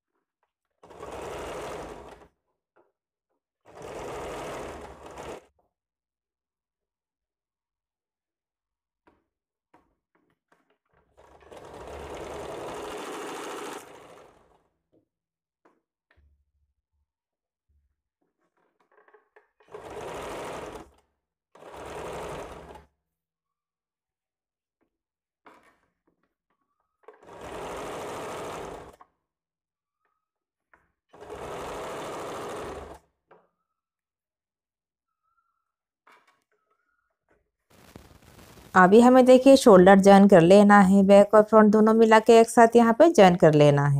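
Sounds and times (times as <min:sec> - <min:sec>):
sewing machine stitching: 0:00.6 - 0:02.4, 0:03.6 - 0:05.5, 0:10.5 - 0:15.0, 0:18.4 - 0:23.0, 0:27.0 - 0:29.1, 0:31.1 - 0:33.4.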